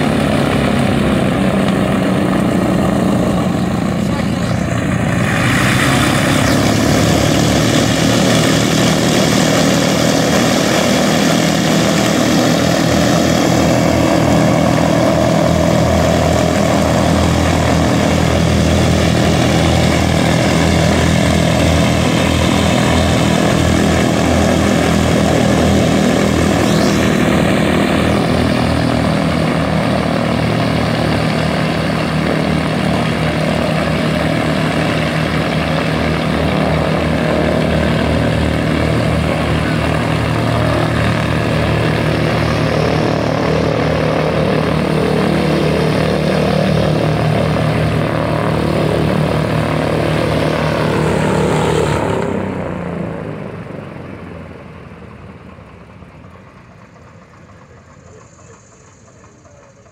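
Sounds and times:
radial aircraft engines running: 0.0 - 59.9.

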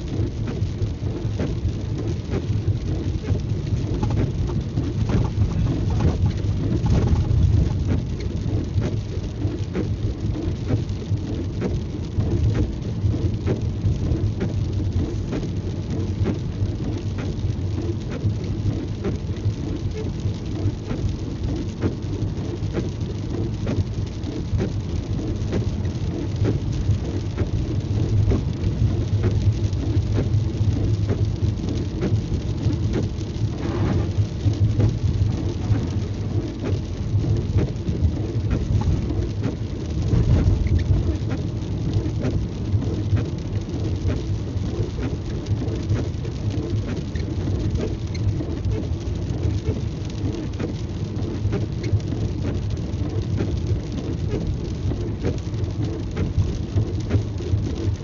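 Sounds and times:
car driving on wet road: 0.0 - 58.0
raindrops ticking on car: 0.0 - 58.0.

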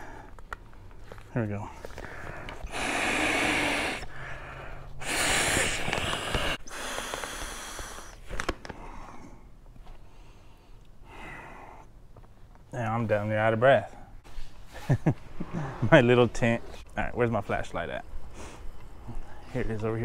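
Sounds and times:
man exhaling hard into valve: 2.5 - 8.2
air rushing into inflatable pad: 2.6 - 4.2, 5.0 - 8.4.

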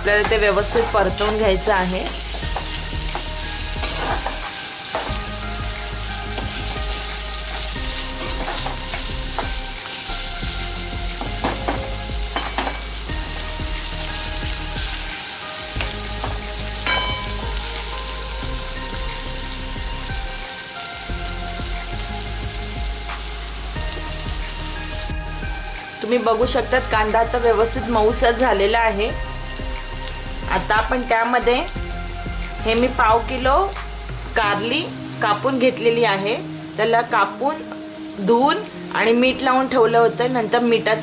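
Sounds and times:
onions sizzling in hot oil: 0.0 - 41.0
spatula scraping and clinking pan: 0.2 - 5.2, 8.2 - 9.5, 11.4 - 13.0, 15.8 - 17.6.

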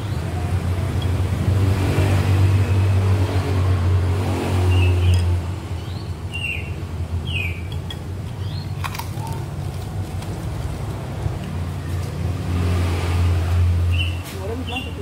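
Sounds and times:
vehicle engine rumbling: 0.0 - 15.0
bird chirping: 4.6 - 7.8, 8.4 - 9.4, 13.9 - 15.0.

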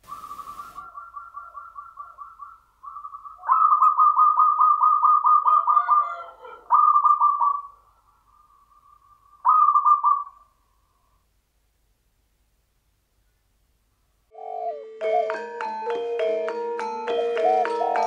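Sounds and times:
dove cooing: 0.1 - 7.8, 9.4 - 10.5, 14.3 - 18.0.

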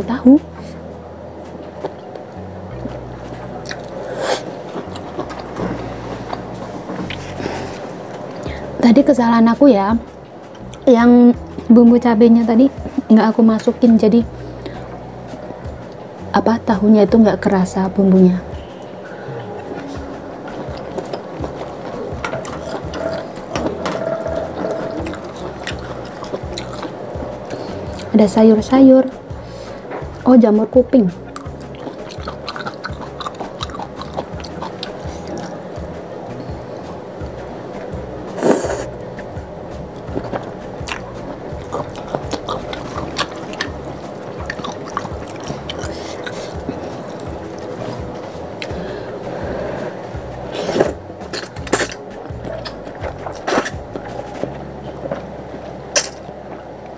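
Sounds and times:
person slurping and chewing noodles: 19.1 - 28.1, 31.2 - 35.6, 38.3 - 39.0, 40.0 - 54.6
noodle slurping: 38.3 - 39.0
wet mouth clicks: 40.2 - 47.7, 50.5 - 54.1.

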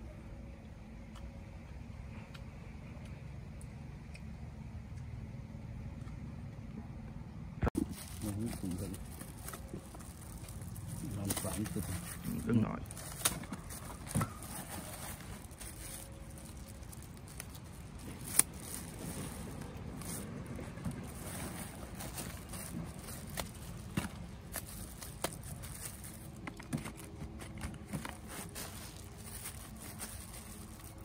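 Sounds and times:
plastic bags rustling: 7.8 - 31.0.

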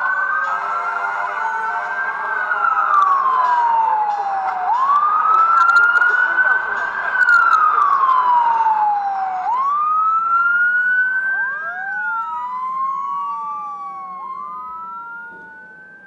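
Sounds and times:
fire engine siren wailing: 0.0 - 16.0.

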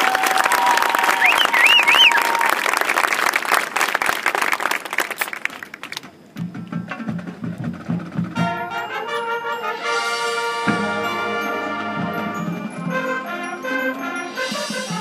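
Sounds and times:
marching band playing: 6.4 - 15.0.

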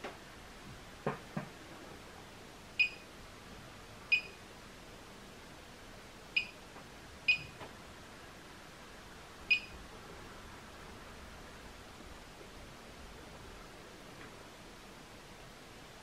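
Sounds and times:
keypad beeps: 2.8 - 3.0, 4.1 - 4.4, 6.4 - 6.6, 7.3 - 7.6, 9.5 - 9.7.

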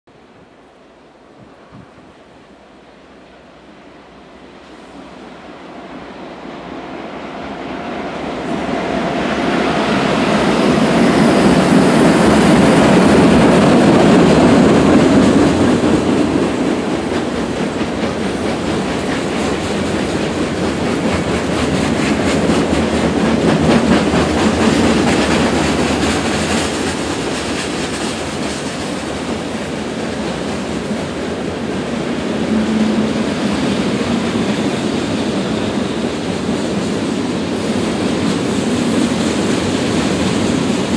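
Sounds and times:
diesel locomotives passing: 0.2 - 40.9
clickety-clack of train wheels: 7.3 - 40.9.

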